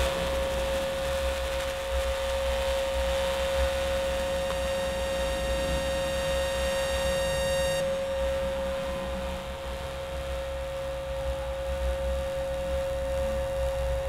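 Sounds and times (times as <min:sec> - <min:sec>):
held drone tone: 0:00.0 - 0:14.0
low wavering rumble: 0:00.0 - 0:14.0.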